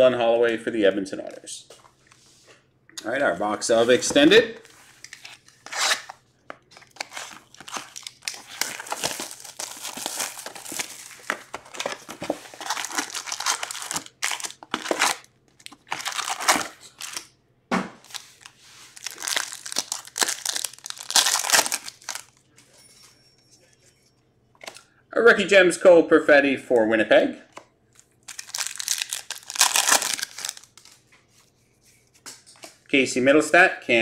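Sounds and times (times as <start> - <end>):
plastic wrapping crinkling: 5.1 - 17.3, 18.0 - 22.4, 28.0 - 31.1.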